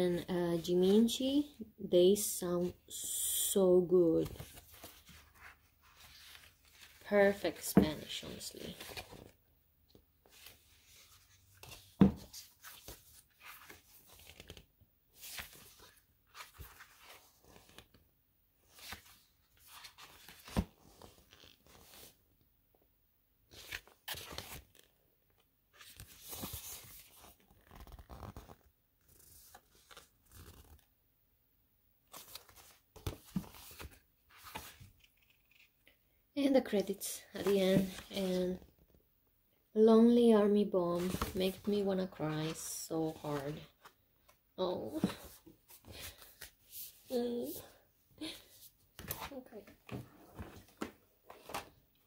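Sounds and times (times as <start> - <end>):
book pages turning: 4.2 - 7.1, 8.1 - 9.4, 10.2 - 18.0, 18.6 - 22.2, 23.5 - 25.0, 25.7 - 30.9, 32.0 - 35.9, 37.4 - 38.9, 41.0 - 47.6, 48.4 - 52.0.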